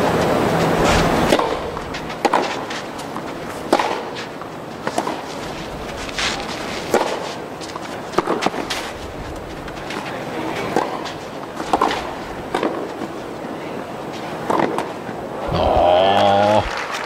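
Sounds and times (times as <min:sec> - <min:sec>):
loud rush of noise: 0:00.0 - 0:04.1
court background noise: 0:00.0 - 0:17.0
tennis ball struck by racquets: 0:00.8 - 0:05.3, 0:06.9 - 0:08.9, 0:10.6 - 0:13.1, 0:14.4 - 0:15.0.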